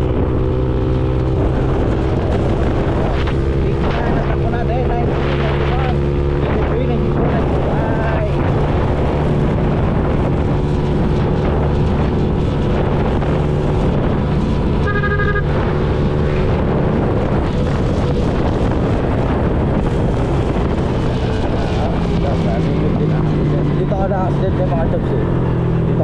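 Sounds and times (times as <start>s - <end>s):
motorcycle engine drone: 0.0s - 26.0s
wind rushing over microphone: 0.0s - 26.0s
brief higher tone: 14.9s - 15.5s.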